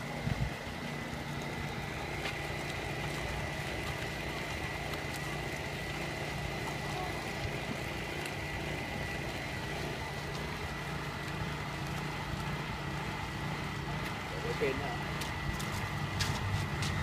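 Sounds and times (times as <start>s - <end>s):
machine low hum: 0.0s - 17.0s.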